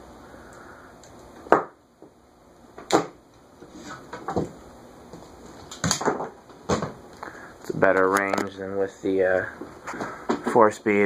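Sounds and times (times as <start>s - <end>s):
ceiling fan whooshing: 0.0s - 1.5s.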